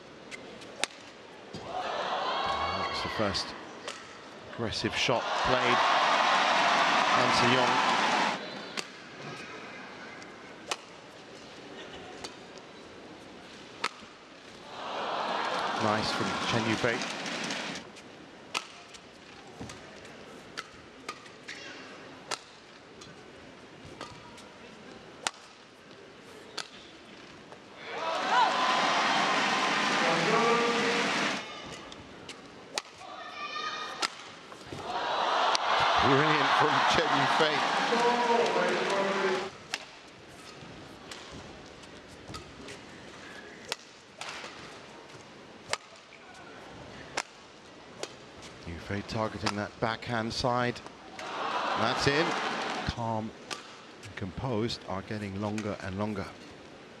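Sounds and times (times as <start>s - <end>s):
rackets hitting shuttlecock: 18.5s - 18.9s, 32.3s - 33.0s, 34.0s - 34.9s, 45.7s - 46.1s
rackets striking shuttlecock: 32.7s - 33.0s.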